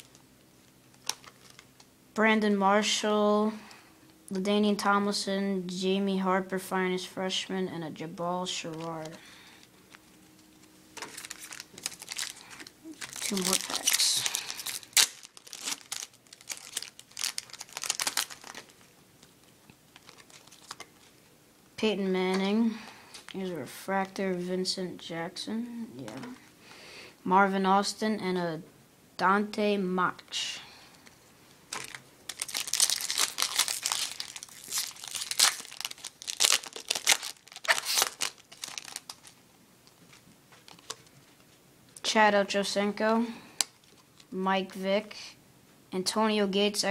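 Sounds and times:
foil wrapper crinkling and tearing: 0:00.9 - 0:01.9, 0:11.0 - 0:21.1, 0:31.7 - 0:41.1.

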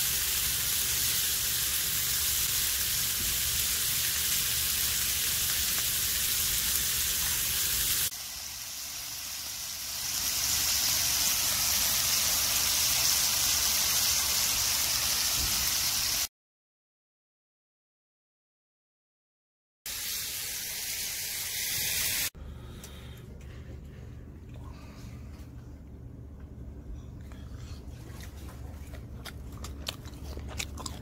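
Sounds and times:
meat sizzling in a frying pan: 0:00.0 - 0:16.3, 0:19.9 - 0:22.3.

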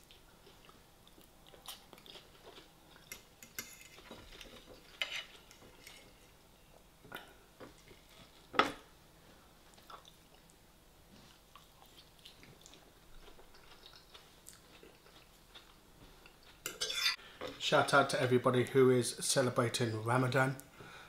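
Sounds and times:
fork scraping ceramic plate: 0:03.6 - 0:06.1, 0:16.7 - 0:17.2.

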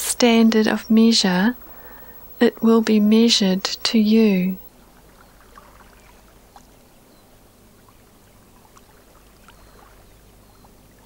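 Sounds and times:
low hum: 0:00.0 - 0:04.7
faint steady hiss: 0:00.0 - 0:05.0.

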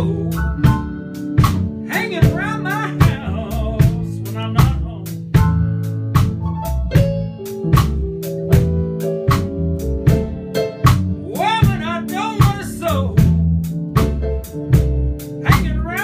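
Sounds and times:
band playing country music: 0:00.0 - 0:16.0.

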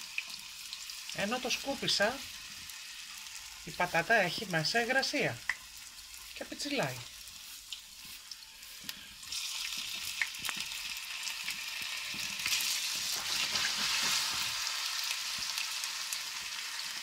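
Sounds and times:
potato sticks frying in oil: 0:00.0 - 0:17.0
oil spitting and crackling: 0:05.3 - 0:16.5.

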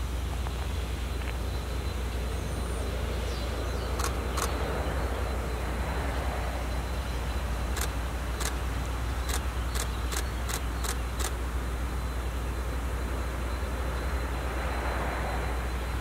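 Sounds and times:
locomotive low rumble: 0:00.0 - 0:16.0
sharp clicks: 0:04.0 - 0:04.6, 0:07.7 - 0:08.6, 0:09.2 - 0:11.4.

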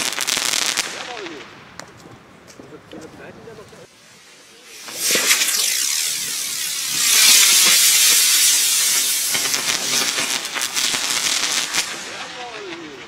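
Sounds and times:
firework crackling: 0:00.0 - 0:02.0, 0:03.8 - 0:13.0
firework hissing: 0:03.8 - 0:13.0.

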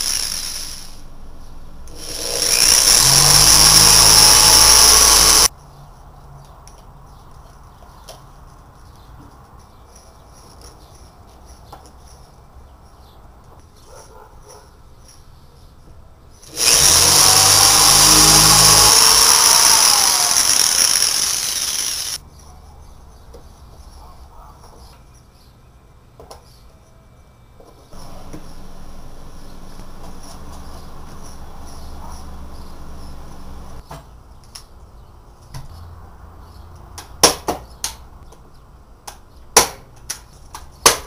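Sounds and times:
electric drill into wood: 0:00.0 - 0:01.0, 0:01.9 - 0:05.5, 0:16.4 - 0:22.2.

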